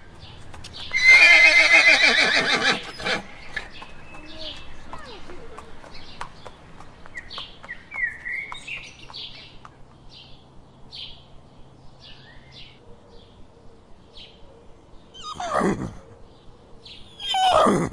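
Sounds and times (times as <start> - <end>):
small birds chirping: 0.0 - 17.8
horse whinnying: 0.9 - 3.3, 15.2 - 16.0, 17.2 - 17.9.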